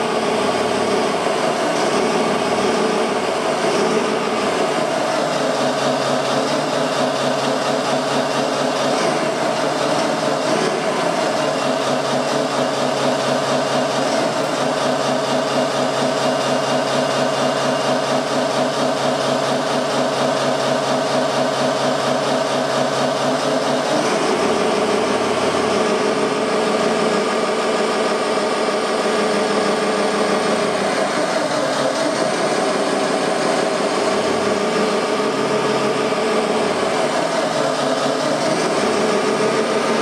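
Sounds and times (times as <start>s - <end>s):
model wheel loader engine: 0.0s - 40.0s.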